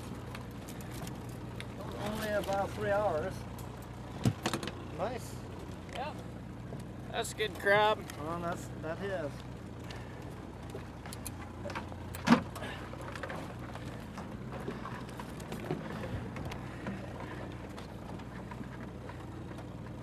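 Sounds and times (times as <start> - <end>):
boat motor idling: 0.0 - 20.0.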